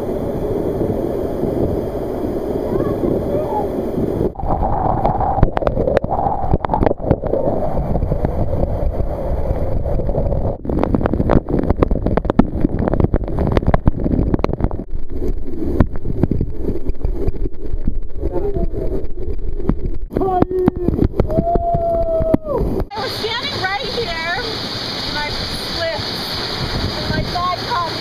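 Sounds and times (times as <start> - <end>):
water drops splashing on microphone: 4.4 - 23.0
waterfall rushing: 22.6 - 28.0.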